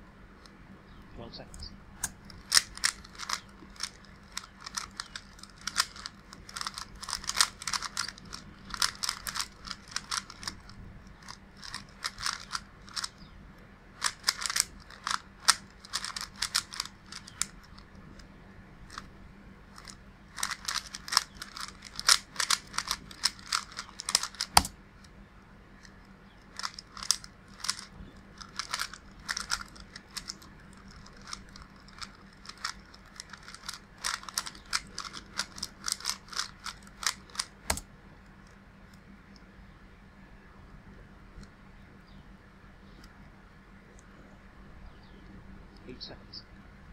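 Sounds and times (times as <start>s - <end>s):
puzzle cube plastic clacking: 1.6s - 13.3s, 14.0s - 18.3s, 18.9s - 19.1s, 19.7s - 25.1s, 25.8s - 37.9s.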